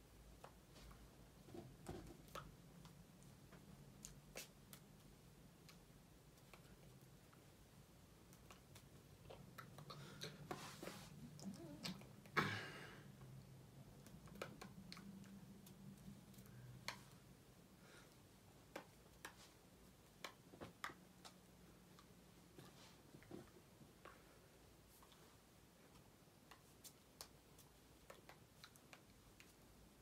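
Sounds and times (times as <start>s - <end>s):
hands clicking and tapping: 14.0s - 17.2s, 18.5s - 22.2s, 25.9s - 29.6s.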